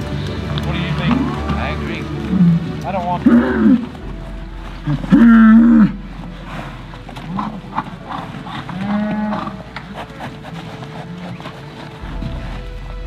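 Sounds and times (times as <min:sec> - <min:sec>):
cattle mooing: 0:00.6 - 0:10.4.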